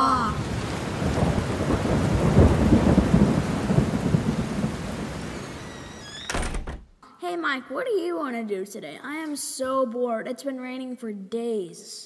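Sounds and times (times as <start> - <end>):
steady rain: 0.0 - 6.6
rolling thunder: 0.3 - 5.7.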